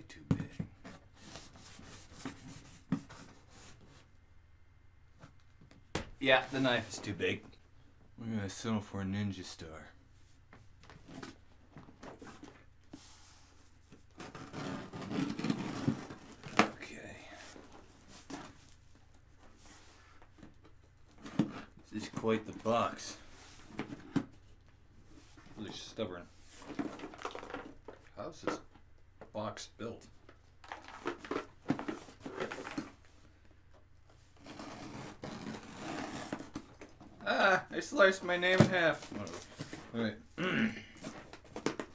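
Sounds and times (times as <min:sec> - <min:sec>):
blade scraping cardboard: 0:14.1 - 0:16.6, 0:34.3 - 0:36.8.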